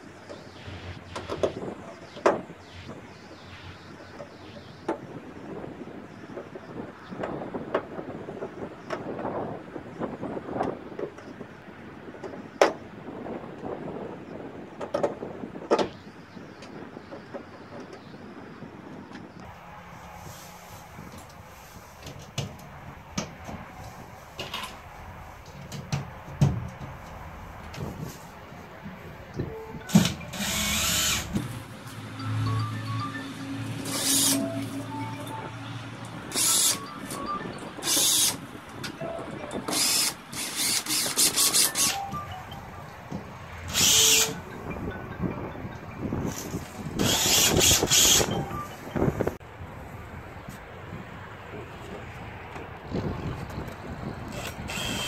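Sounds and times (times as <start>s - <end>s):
cordless drill driving screws: 29.9s - 31.4s, 33.8s - 34.5s, 36.3s - 36.9s, 37.8s - 38.4s, 39.7s - 42.0s, 43.7s - 44.4s, 47.0s - 48.3s, 54.3s - 55.0s.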